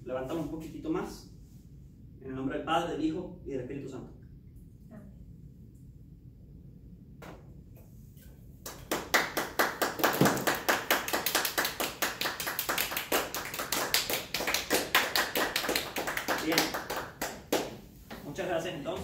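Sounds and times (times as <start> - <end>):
people clapping: 8.6 - 17.9.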